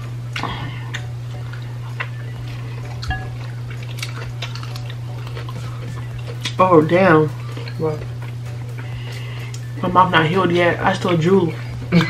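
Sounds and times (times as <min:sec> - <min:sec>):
steady low hum: 0:00.0 - 0:12.0
eating sounds: 0:00.3 - 0:09.6.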